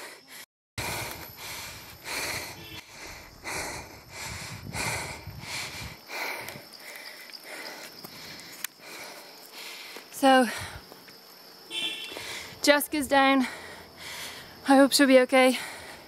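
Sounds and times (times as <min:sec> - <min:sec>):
cyclist breathing hard: 0:00.0 - 0:11.1, 0:11.9 - 0:14.6, 0:15.4 - 0:16.0.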